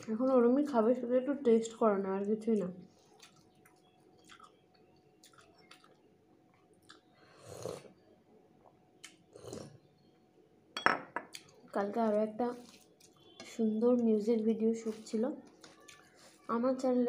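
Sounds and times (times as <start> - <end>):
chewing: 2.5 - 7.9, 15.4 - 16.5
noisy sips from a bowl: 7.2 - 7.9.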